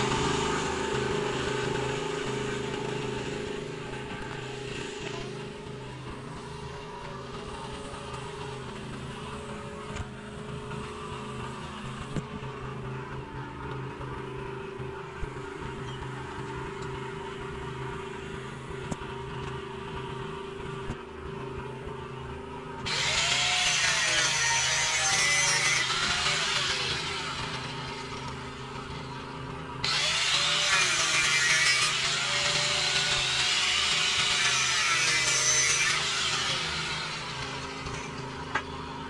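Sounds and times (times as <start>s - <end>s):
power tool cutting steel pipe: 0.0s - 12.4s, 22.8s - 39.0s
small engine running: 0.0s - 39.0s.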